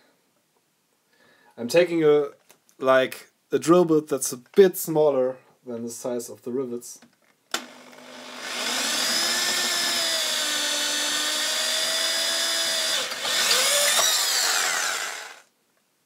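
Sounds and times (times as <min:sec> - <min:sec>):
electric drill whining: 0:07.5 - 0:15.5.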